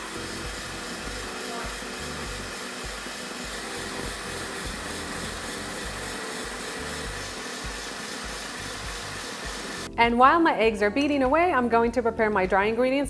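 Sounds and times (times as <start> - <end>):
background music with bass: 0.0 - 2.6, 3.5 - 7.8, 8.6 - 13.0
stand mixer whisk whirring: 0.0 - 9.9.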